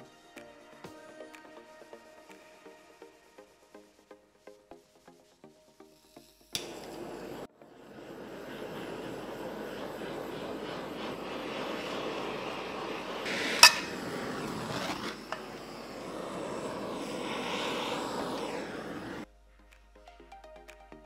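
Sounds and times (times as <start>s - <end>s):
blowtorch flame hissing: 6.5s - 19.3s.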